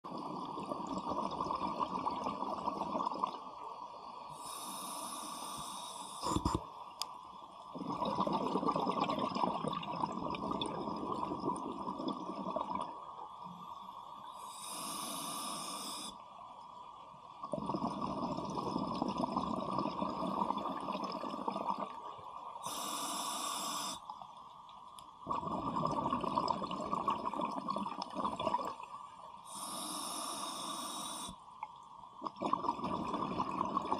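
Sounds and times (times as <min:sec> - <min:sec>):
exhaled air bubbling underwater: 0:00.0 - 0:06.7, 0:07.6 - 0:16.2, 0:17.2 - 0:24.4, 0:25.2 - 0:33.9
regulator inhale hiss: 0:04.3 - 0:06.6, 0:13.6 - 0:16.2, 0:22.6 - 0:24.1, 0:29.4 - 0:31.5.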